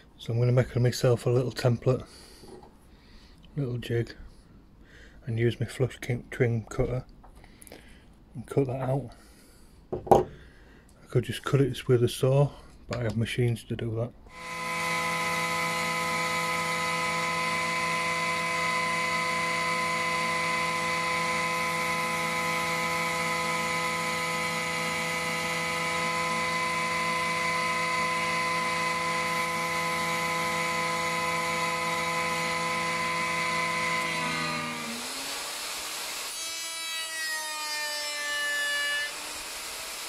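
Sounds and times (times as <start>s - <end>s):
woodworking machine whining: 14.3s - 40.0s.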